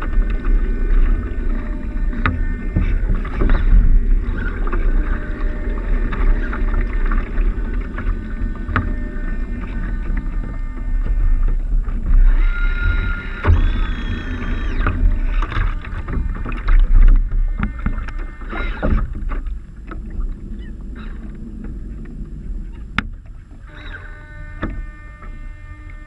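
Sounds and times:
water sloshing against hull: 0.0 - 26.0
wind rumble on microphone: 0.0 - 26.0
short squeaky tones: 12.2 - 15.3, 23.7 - 26.0.

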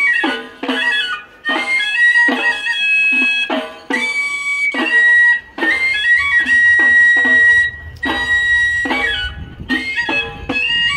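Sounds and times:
flute-like melody: 0.0 - 10.9
struck notes: 0.0 - 10.9.

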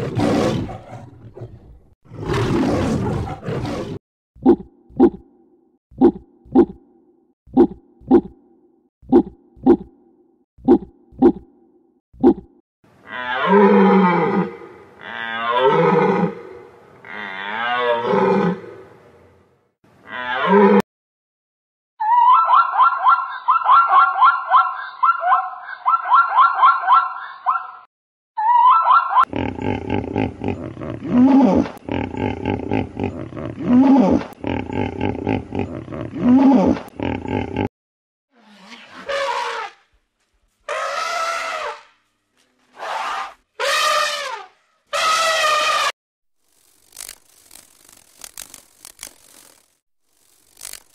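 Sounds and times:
hippopotamus honking: 43.6 - 45.9.

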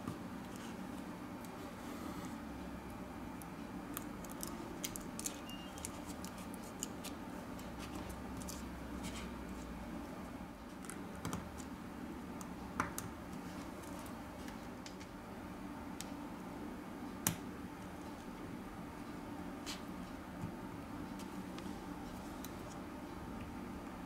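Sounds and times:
low steady hum: 0.0 - 24.0
clicks and scratches of handling: 3.4 - 9.8, 19.6 - 22.9.

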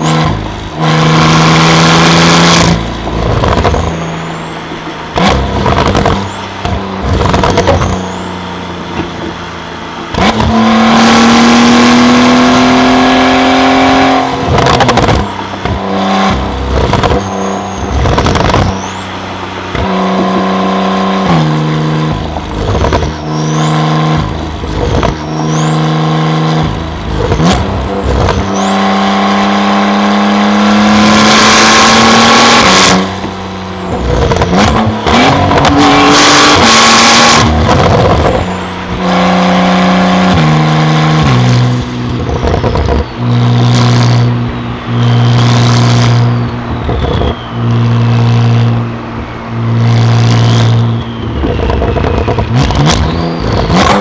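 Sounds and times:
car engine revving with gear changes: 0.0 - 54.0
exhaust crackling: 0.0 - 54.0.

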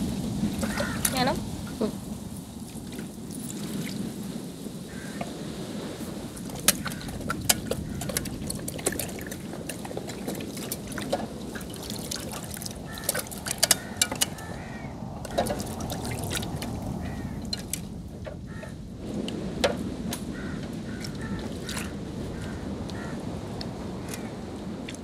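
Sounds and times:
water pouring and trickling: 0.0 - 5.3, 6.0 - 18.2, 21.0 - 22.0
small splashes and clicks: 6.4 - 14.5, 15.2 - 16.9, 17.5 - 17.9.

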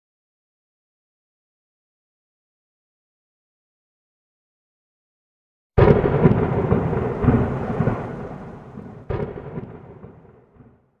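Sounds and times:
crash with rumbling tail: 5.8 - 10.3.

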